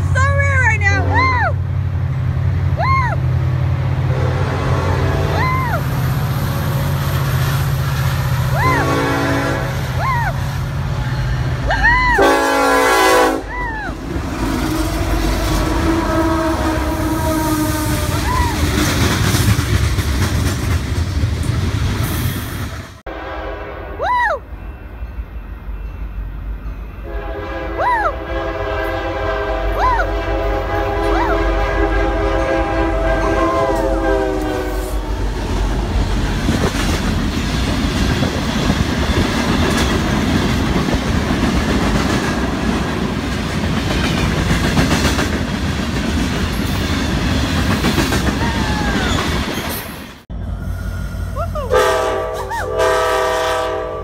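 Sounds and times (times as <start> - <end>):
locomotive horn blasts: 4.1 - 5.4, 8.7 - 10.0, 12.2 - 13.5, 14.4 - 18.2, 23.1 - 24.0, 27.0 - 35.1, 51.7 - 54.0
freight cars clattering on rails: 18.2 - 23.0, 35.7 - 50.2.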